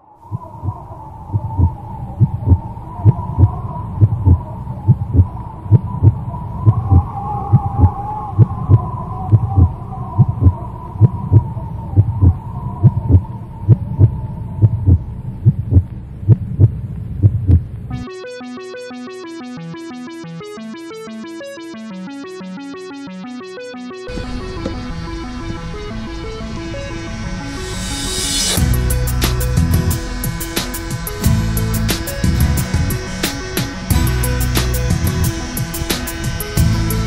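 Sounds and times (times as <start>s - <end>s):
heartbeat thumps: 0.3s - 17.7s
wavering hum: 17.9s - 37.0s.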